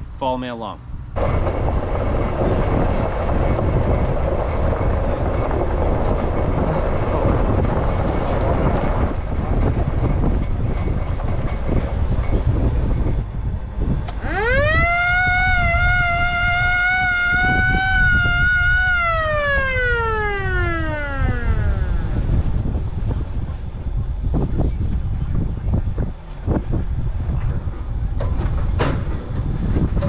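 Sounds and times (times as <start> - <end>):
pickup truck rumbling: 1.0 - 30.0
siren wailing: 14.2 - 22.6.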